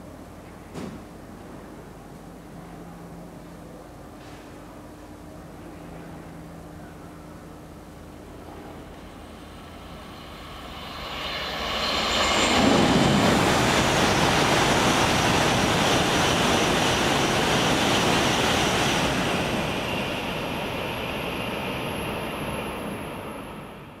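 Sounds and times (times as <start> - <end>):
high-speed train passing: 7.9 - 24.0.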